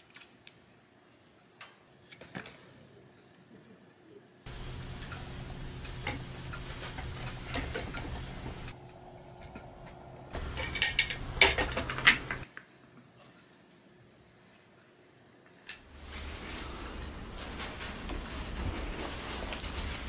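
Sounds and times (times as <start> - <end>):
thread winder humming: 4.5 - 12.4.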